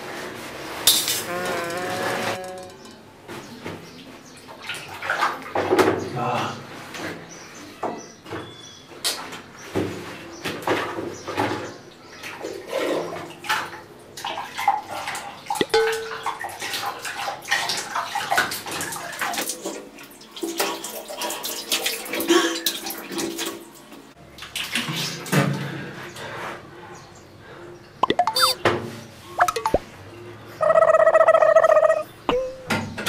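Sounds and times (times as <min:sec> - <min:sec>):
water splashing in bucket: 0:12.2 - 0:23.6
water dripping: 0:15.2 - 0:23.0, 0:29.4 - 0:29.8.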